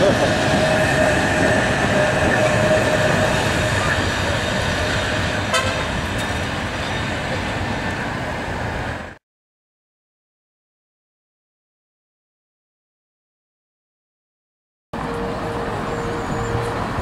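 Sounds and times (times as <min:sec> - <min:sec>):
tram running past: 0:00.0 - 0:09.2, 0:15.0 - 0:17.0.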